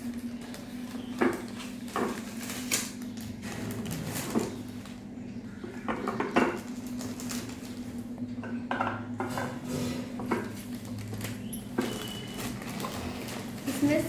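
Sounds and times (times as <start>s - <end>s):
plastic wrapping rustling: 0.0s - 5.1s, 6.5s - 8.1s, 10.3s - 14.0s.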